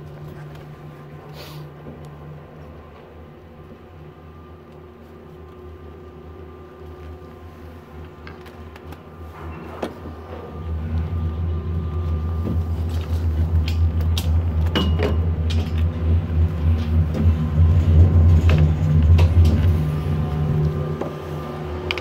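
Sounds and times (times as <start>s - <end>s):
gondola cabin rumbling: 9.4s - 22.0s.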